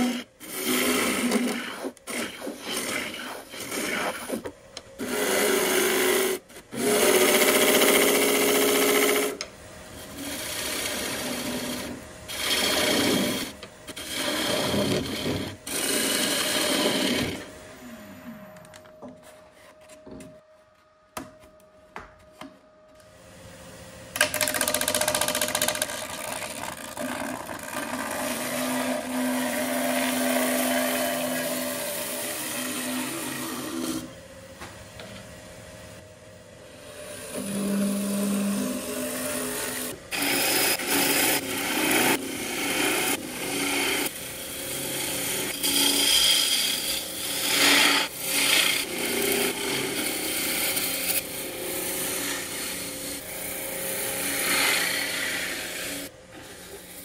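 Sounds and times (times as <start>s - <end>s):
lathe gouge shaving hiss: 0.0s - 17.6s, 26.2s - 34.1s, 36.7s - 57.0s.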